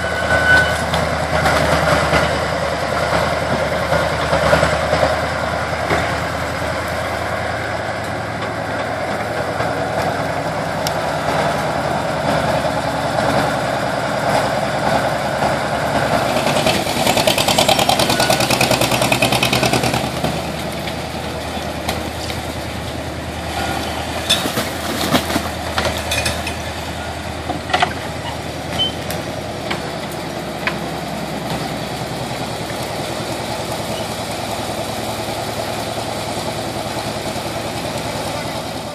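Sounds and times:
dredging machine engine running: 0.0 - 38.9
knocks and clanks: 24.2 - 31.7.

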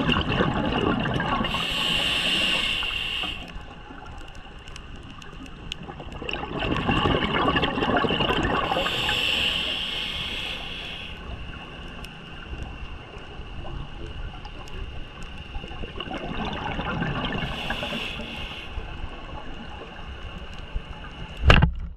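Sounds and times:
gurgling exhaled bubbles: 0.0 - 4.4, 5.1 - 11.2, 15.5 - 18.4
hissing regulator inhale: 1.4 - 3.7, 8.6 - 11.4, 17.3 - 19.0.

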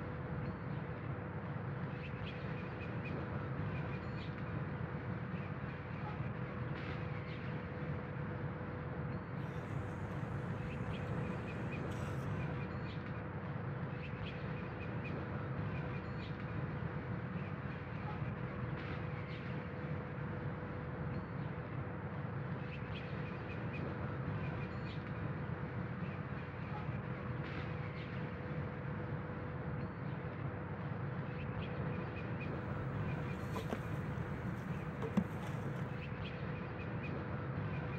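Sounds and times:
mid-pitched hum: 9.4 - 12.7, 32.5 - 36.1
faint bird chirps: 9.4 - 13.0.

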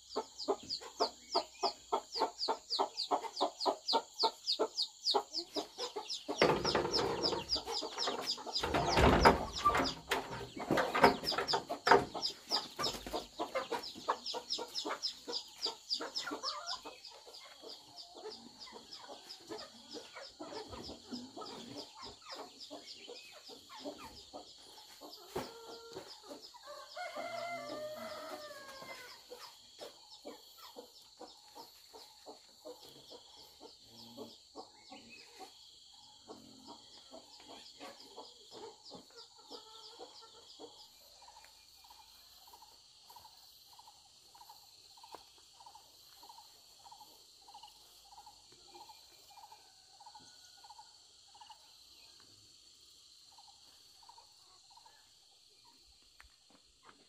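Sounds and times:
chickens clucking: 0.0 - 57.0
insect chirring: 26.6 - 56.6
rooster crowing: 26.7 - 29.2.

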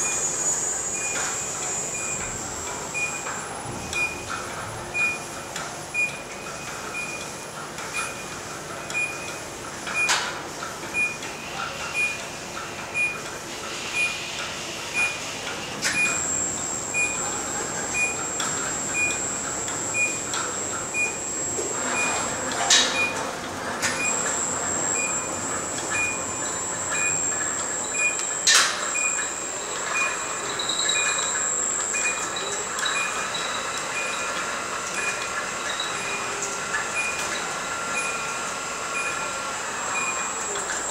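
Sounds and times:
short warning beeps: 12.0 - 12.2, 13.0 - 13.2, 15.0 - 15.2, 15.9 - 23.2, 23.8 - 34.3, 37.0 - 37.3, 39.0 - 40.5
motor whine: 15.9 - 33.2.

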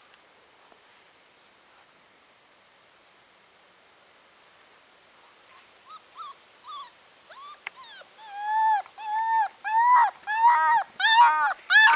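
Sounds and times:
puppy whining: 5.5 - 11.9.

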